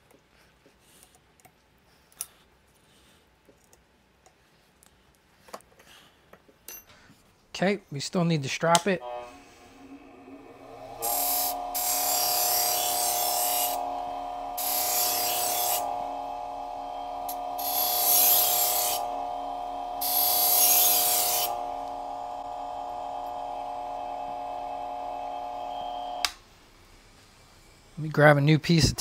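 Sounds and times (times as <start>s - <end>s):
knife blade hissing on buffing wheel: 9.0s - 26.2s
bench buffer humming: 9.0s - 27.8s.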